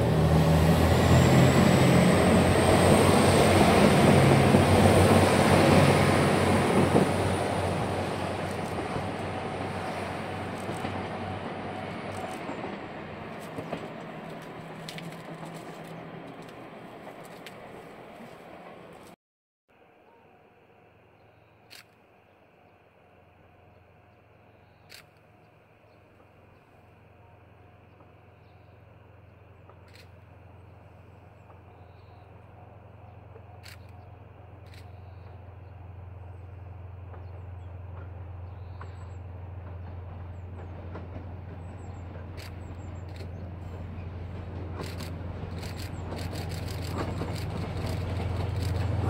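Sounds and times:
diesel train engine drone: 0.0s - 19.2s, 19.8s - 49.0s
wheels clicking on rails: 10.2s - 19.2s, 37.1s - 49.0s.

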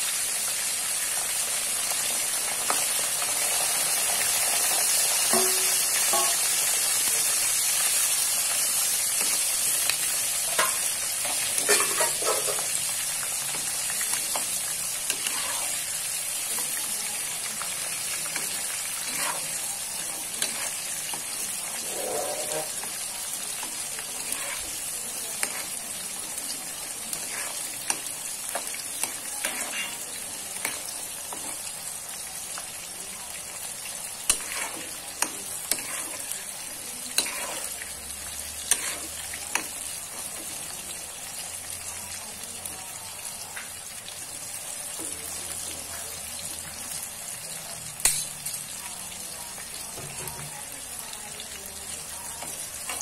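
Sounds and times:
eggplant sizzling in oil: 0.0s - 53.0s
spatula scraping a pan: 10.6s - 12.8s, 14.3s - 16.0s, 18.3s - 25.8s, 27.1s - 31.7s, 34.2s - 37.8s, 38.6s - 40.4s.

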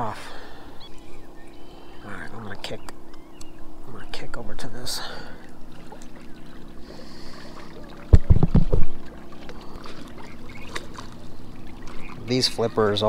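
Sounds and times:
boat moving on water: 0.0s - 13.0s.

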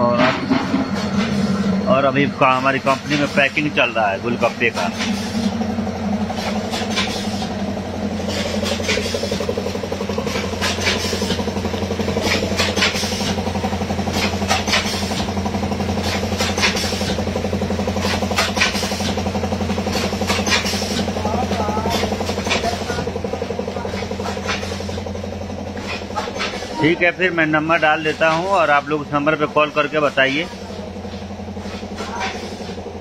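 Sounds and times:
packing machine humming: 0.0s - 33.0s.

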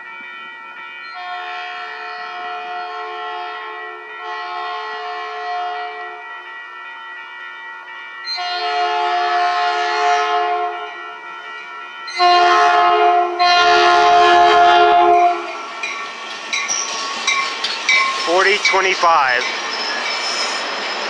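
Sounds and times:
train air horn blasts: 1.2s - 6.2s, 8.4s - 11.2s, 12.1s - 15.6s
train cars rumbling on rails: 11.4s - 21.0s.

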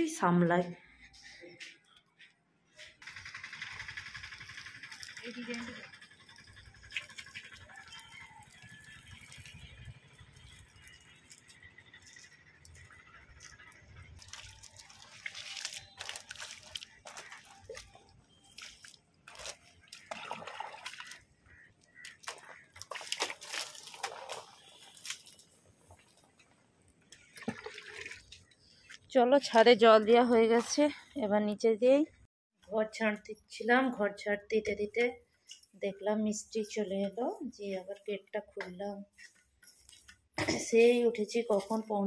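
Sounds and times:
water splashing on plaster: 14.2s - 26.3s.

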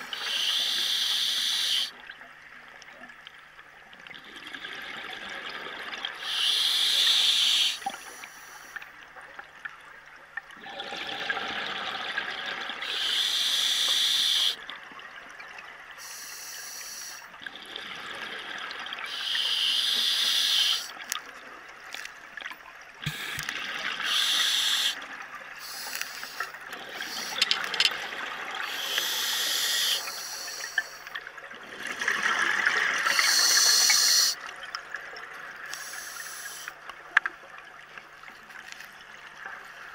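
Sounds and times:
regulator inhalation hiss: 0.1s - 1.9s, 6.2s - 8.8s, 12.8s - 14.6s, 16.0s - 17.2s, 19.1s - 21.0s, 24.0s - 25.0s, 25.6s - 27.8s, 28.6s - 31.1s, 33.0s - 34.4s, 35.7s - 36.8s.

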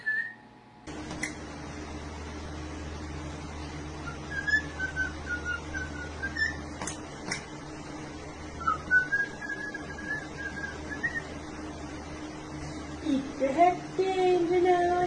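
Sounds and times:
bird whistling: 0.0s - 0.4s, 4.0s - 6.7s, 8.6s - 11.3s.

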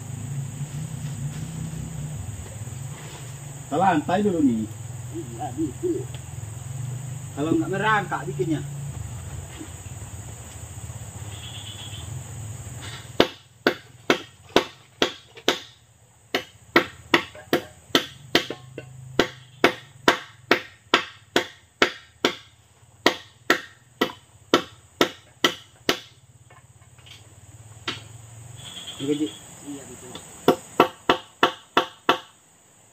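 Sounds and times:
tool striking wood: 12.8s - 27.2s, 27.8s - 28.1s, 30.1s - 32.4s.

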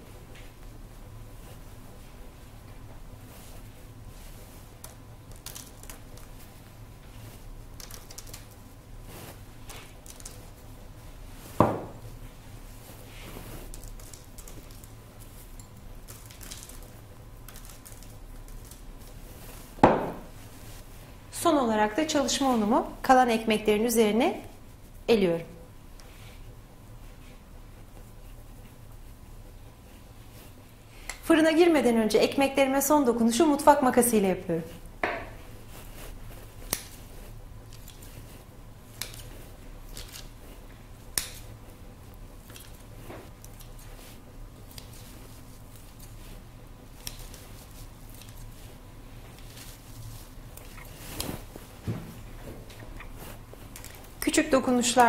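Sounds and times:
steady low hum: 0.0s - 55.0s
scissors snipping dough: 36.5s - 38.2s, 38.9s - 40.4s, 41.0s - 41.6s, 46.9s - 48.6s.

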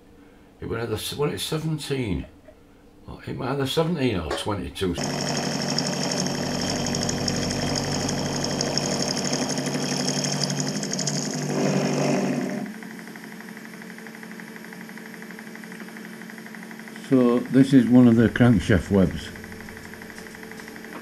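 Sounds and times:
steady machine hum: 0.0s - 21.0s
milling machine cutting metal: 5.0s - 12.7s.

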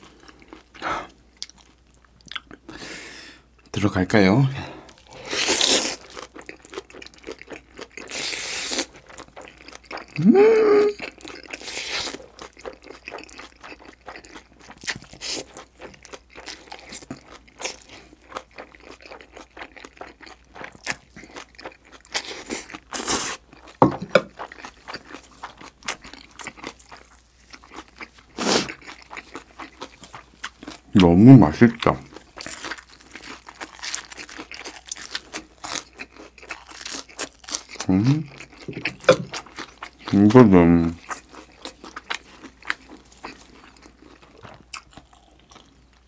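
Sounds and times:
wet chewing and crunching: 0.0s - 2.7s, 4.8s - 46.0s.

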